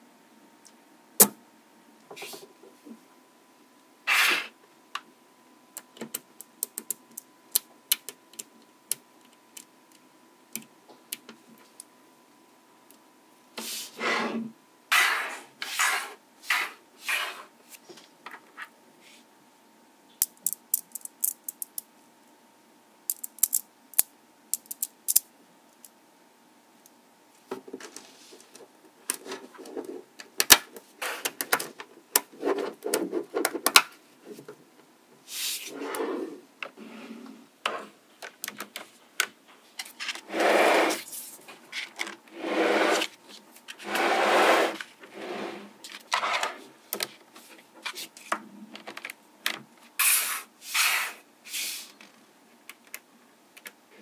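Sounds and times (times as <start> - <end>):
balls rubbing against table: 4.1 - 4.6, 13.6 - 18.1, 35.3 - 37.9, 40.2 - 41.2, 42.3 - 46.7
magnetic balls clicking: 20.2 - 21.9, 23.1 - 25.9.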